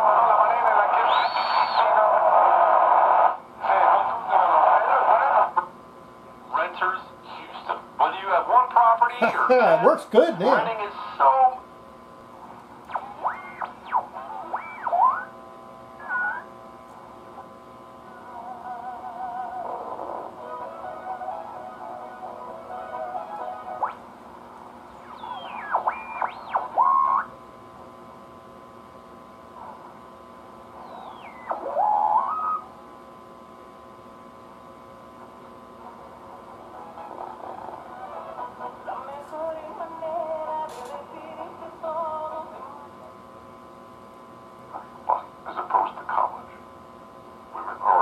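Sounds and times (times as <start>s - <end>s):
radio speaker hum: 0.0s - 48.0s
radio tuning whistles: 0.8s - 3.4s, 12.9s - 16.6s, 25.0s - 27.4s, 30.7s - 32.8s.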